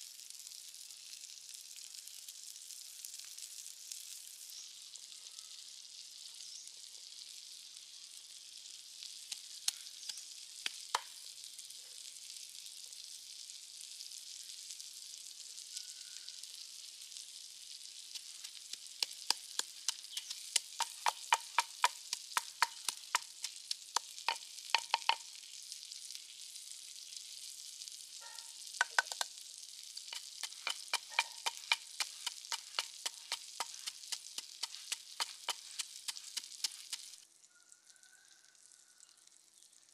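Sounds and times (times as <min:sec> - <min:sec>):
steady high hiss: 0:18.0 - 0:25.4, 0:28.4 - 0:37.2
wooden pestle pounding in mortar: 0:18.2 - 0:25.2, 0:28.8 - 0:29.3, 0:30.2 - 0:37.2.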